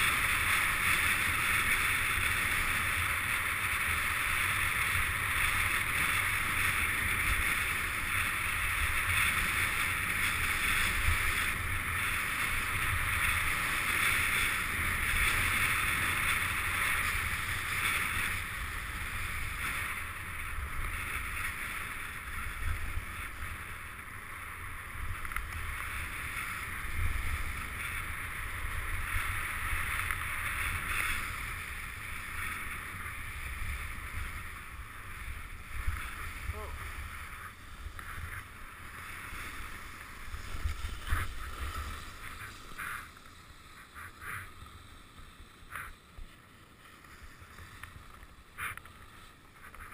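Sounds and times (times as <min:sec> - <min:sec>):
skis scraping on snow: 0:00.0 - 0:49.9
wind on microphone: 0:25.0 - 0:44.6.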